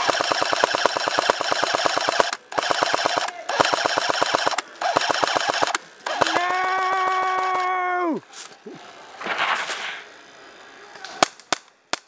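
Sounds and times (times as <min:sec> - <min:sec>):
airsoft gun full-auto bursts: 0:00.0 - 0:07.7
man yelling: 0:06.2 - 0:08.3.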